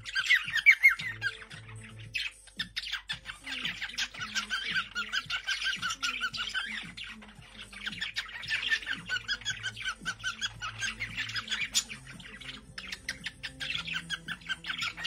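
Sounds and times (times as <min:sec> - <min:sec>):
cockatiel chirping: 0:00.0 - 0:15.0.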